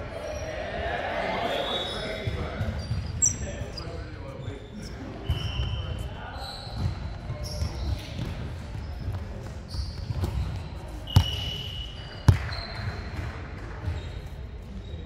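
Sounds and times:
shoe squeak: 1.5s - 15.0s
volleyball bouncing on hardwood floor: 12.2s - 14.1s.

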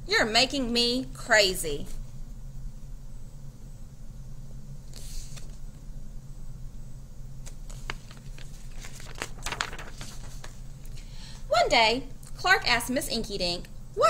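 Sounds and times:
steady low hum: 0.0s - 14.0s
paper rustling: 4.8s - 5.7s, 7.4s - 11.0s
book clicks and rustles: 7.4s - 10.9s.

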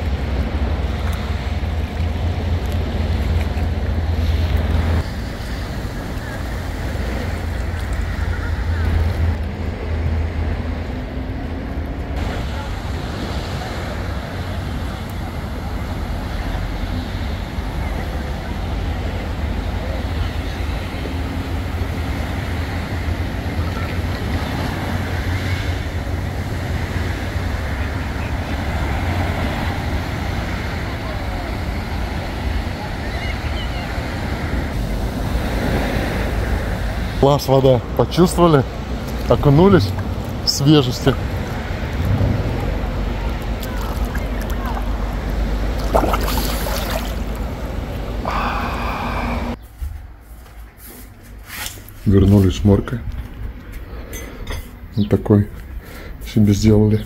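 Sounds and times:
wind buffeting microphone: 38.6s - 50.1s
small waves breaking on shingle: 41.3s - 48.2s.

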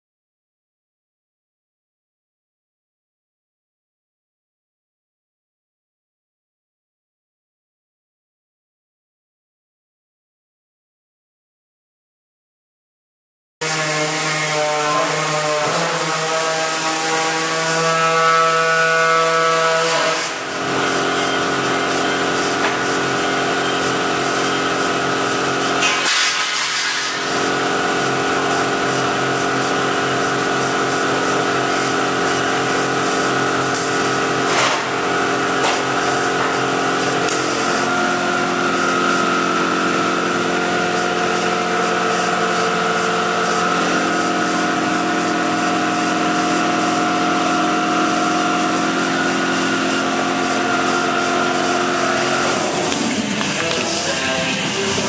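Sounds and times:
air compressor running: 13.6s - 55.0s
pneumatic tool cutting metal: 13.6s - 55.0s.

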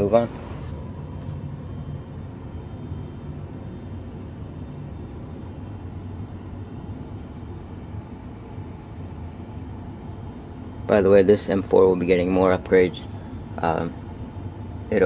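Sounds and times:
low hum: 0.0s - 11.6s.

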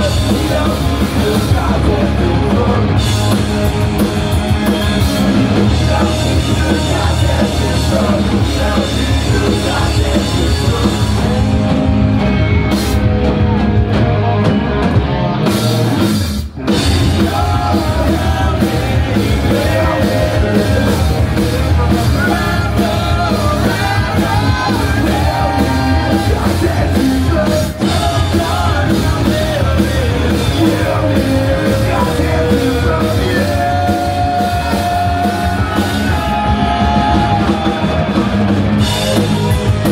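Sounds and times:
person singing: 0.0s - 3.4s, 4.6s - 11.8s, 16.7s - 38.0s
punk rock band playing: 0.0s - 39.9s.

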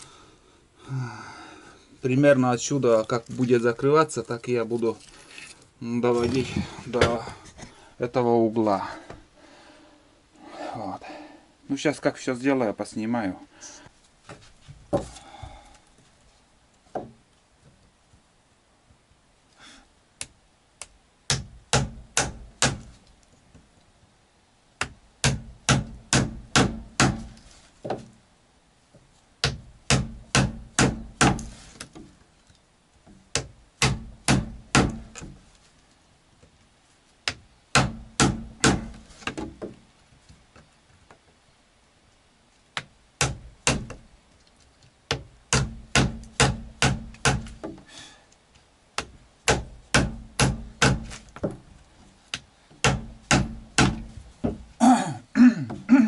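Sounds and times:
hand tool striking wood: 21.3s - 23.0s, 24.8s - 28.1s, 29.4s - 32.1s, 33.1s - 35.4s, 37.2s - 39.8s, 42.8s - 44.0s, 45.1s - 47.9s, 49.0s - 51.6s, 52.3s - 54.7s.

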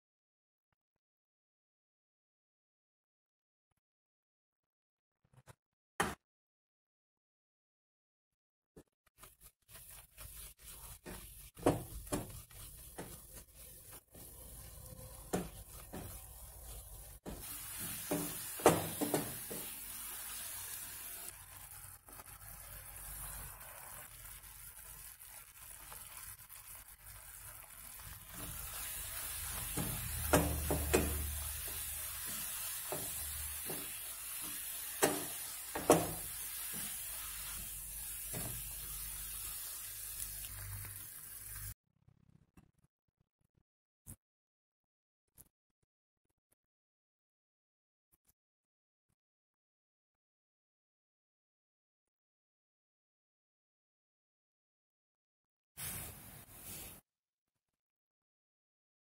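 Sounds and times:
wooden spatula scraping a pan: 9.2s - 39.8s
mixture sizzling: 9.2s - 41.8s
spatula knocking against pan: 29.7s - 31.2s.

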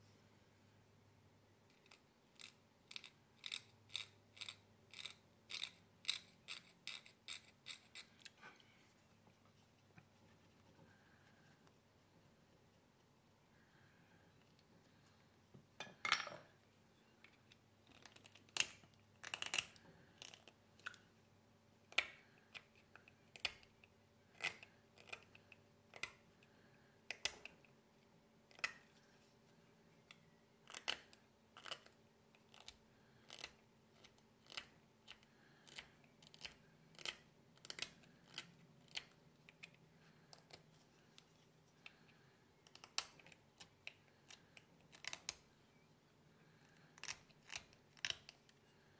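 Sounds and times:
blade scraping nut: 1.8s - 8.4s.

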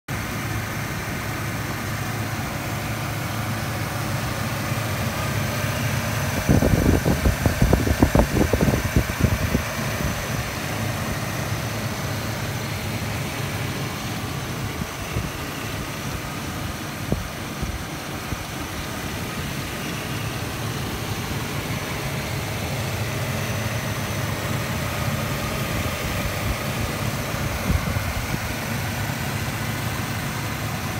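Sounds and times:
engine idling: 0.1s - 30.9s
irregular low buffeting: 0.2s - 30.9s.

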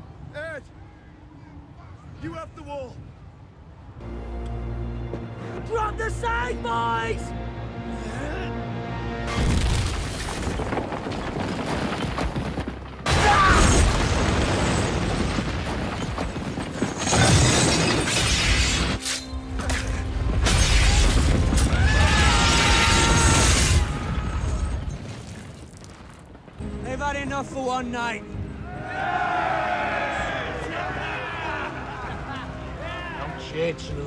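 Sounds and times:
dramatic orchestral music: 4.0s - 9.6s
ice shattering: 9.3s - 25.9s.

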